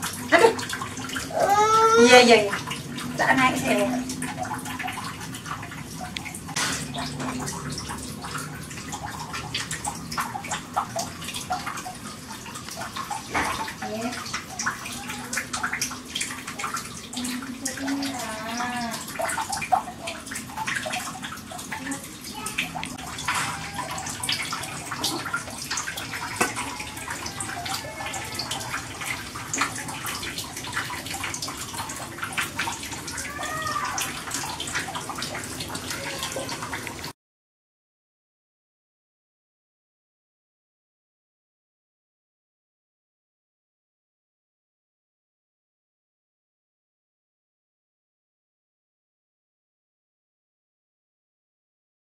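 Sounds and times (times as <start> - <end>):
water boiling hard: 0.0 - 37.1.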